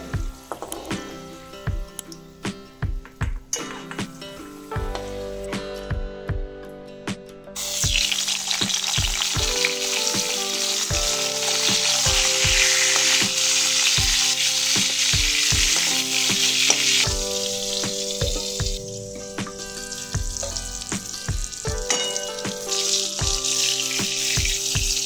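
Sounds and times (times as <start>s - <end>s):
eggplant sizzling in hot oil: 7.6s - 25.0s.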